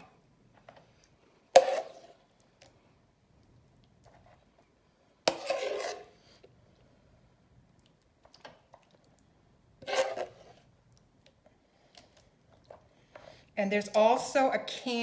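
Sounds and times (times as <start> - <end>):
spoon scraping a skillet: 1.5 - 2.3, 5.2 - 6.5, 9.8 - 10.7.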